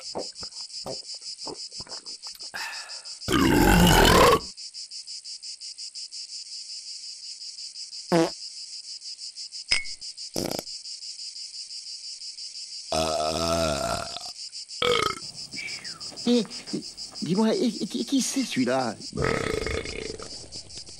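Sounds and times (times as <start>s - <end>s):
insect chorus: 0.0s - 20.9s
deep burp: 3.3s - 4.5s, 10.4s - 10.7s, 12.9s - 15.2s, 19.2s - 20.4s.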